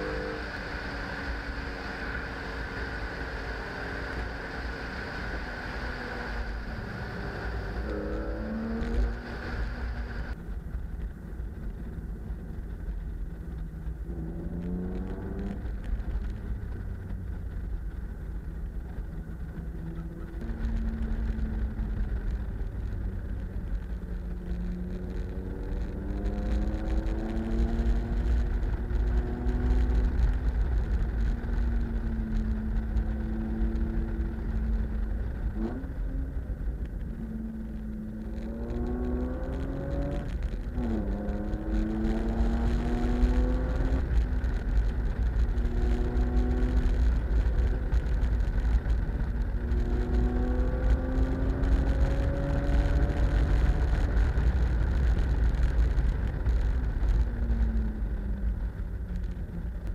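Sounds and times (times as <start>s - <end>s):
car engine accelerating: 0.0s - 59.9s
road and wind rumble: 0.0s - 59.9s.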